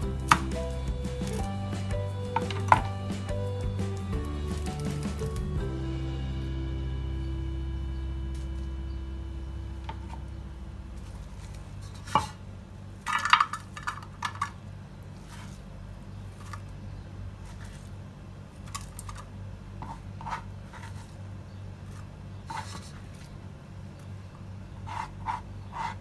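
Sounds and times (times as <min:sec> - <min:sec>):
steady low hum: 0:00.0 - 0:13.2.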